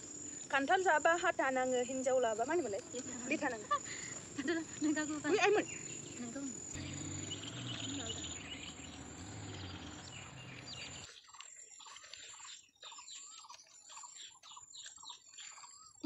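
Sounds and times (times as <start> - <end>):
insects hissing: 0.0 - 11.1
small birds chirping: 0.0 - 16.0.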